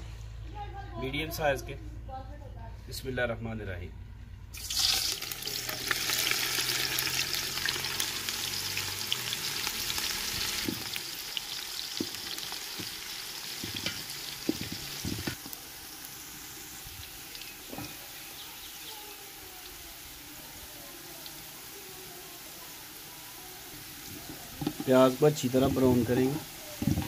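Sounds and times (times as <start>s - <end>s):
onions sizzling in hot oil: 4.6s - 27.0s.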